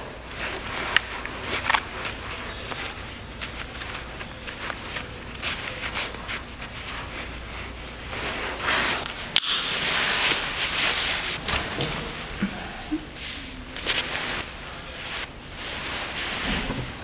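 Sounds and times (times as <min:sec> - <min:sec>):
nylon jacket swishing: 0:09.8 - 0:12.4, 0:13.2 - 0:17.0.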